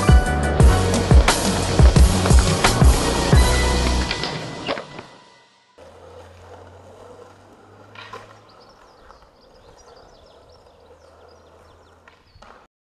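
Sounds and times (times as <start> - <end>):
small birds chirping: 7.7 - 12.7.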